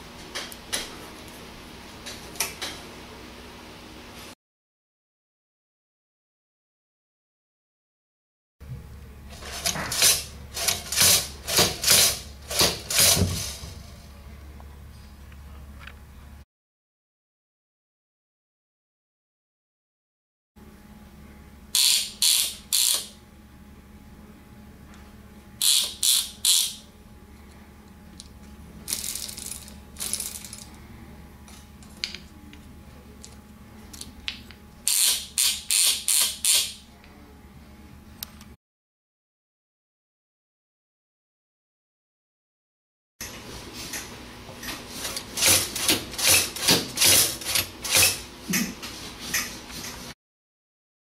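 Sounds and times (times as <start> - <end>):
low steady hum: 8.6 - 11.5, 13.3 - 16.4, 20.6 - 21.8, 23.2 - 34.9, 36.8 - 38.6
chain drive clicking and ratcheting: 21.8 - 23.1, 25.6 - 26.8, 34.9 - 36.8.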